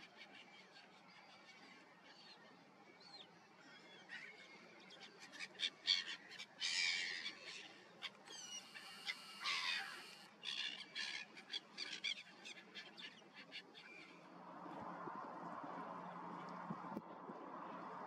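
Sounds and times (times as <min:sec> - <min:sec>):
harsh chattering bird calls: 0:08.0 - 0:12.6.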